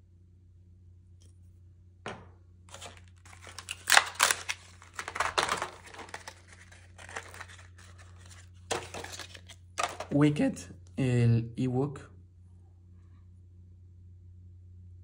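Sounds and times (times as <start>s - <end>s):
packaging tearing and crinkling: 2.7s - 10.1s.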